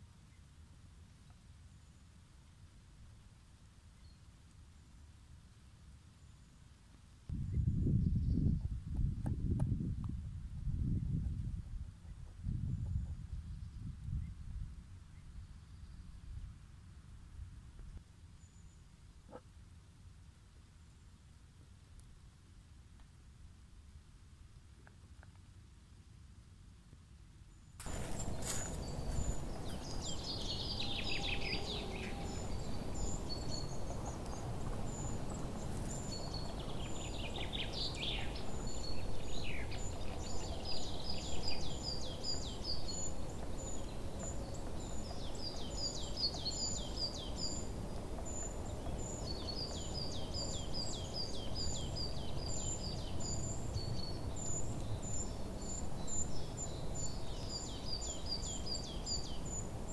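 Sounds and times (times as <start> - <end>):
songbirds chirping: 12.1 - 17.0, 27.4 - 59.9.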